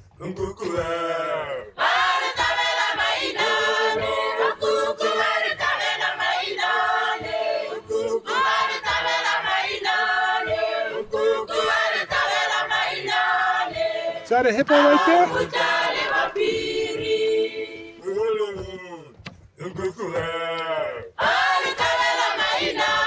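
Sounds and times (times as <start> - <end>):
choir singing: 0.3 - 18.3, 19.6 - 23.0.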